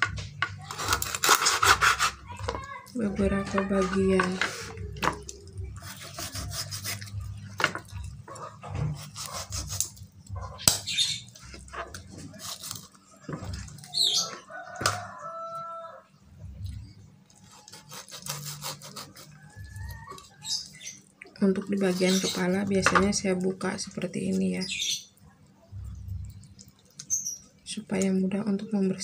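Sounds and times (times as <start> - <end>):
knife scraping cuts: 0.6 - 2.2, 5.8 - 7.2, 8.8 - 10.0, 11.9 - 13.0, 17.4 - 19.4
bird calling: 13.8 - 15.9.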